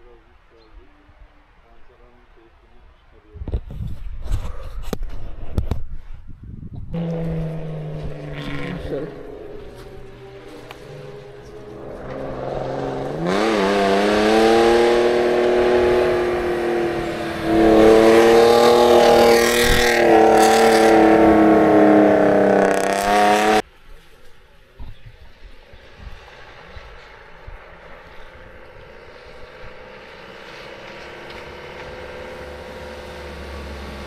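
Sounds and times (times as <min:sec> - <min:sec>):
off-road vehicle engine at high revs: 0:06.9 - 0:23.6, 0:24.9 - 0:34.0.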